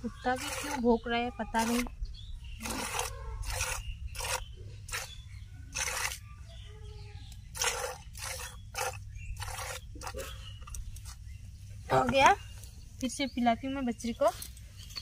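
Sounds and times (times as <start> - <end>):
milk squirting into a bucket: 7.5 - 11.2.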